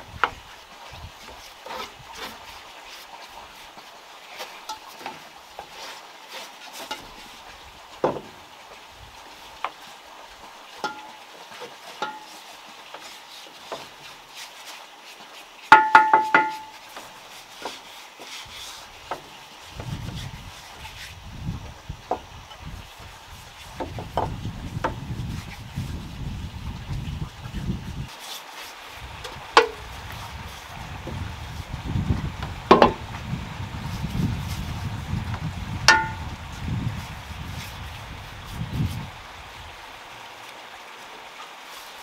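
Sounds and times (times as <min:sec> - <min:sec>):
paintbrushes on wooden railing: 0:00.0 - 0:42.0
small knocks and scrapes: 0:00.1 - 0:08.8, 0:10.7 - 0:39.1
metal paint bowl ringing: 0:10.8 - 0:11.2, 0:12.0 - 0:12.3, 0:15.8 - 0:16.8, 0:35.9 - 0:36.2.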